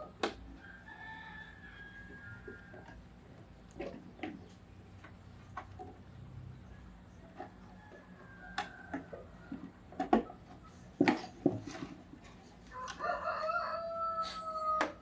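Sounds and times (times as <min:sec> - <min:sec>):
rooster crowing: 0:00.6 - 0:03.0, 0:12.7 - 0:15.0.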